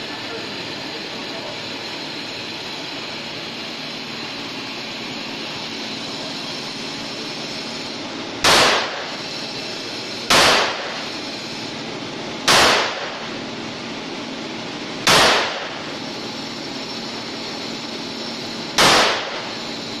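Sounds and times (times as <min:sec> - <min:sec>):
pistol shots with echo: 0:08.4 - 0:09.1, 0:10.3 - 0:11.0, 0:12.5 - 0:13.2, 0:15.0 - 0:15.8, 0:18.8 - 0:19.5.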